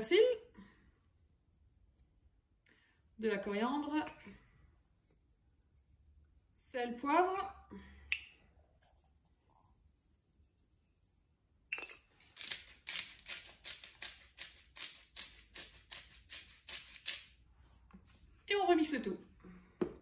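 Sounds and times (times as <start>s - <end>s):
pepper mill grinding peppercorns: 12.0s - 17.4s.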